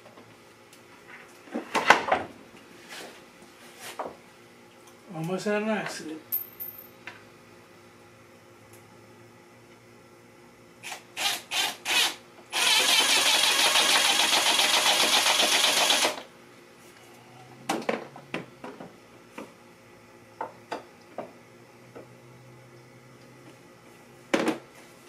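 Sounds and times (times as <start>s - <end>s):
cordless drill running: 10.8s - 16.2s.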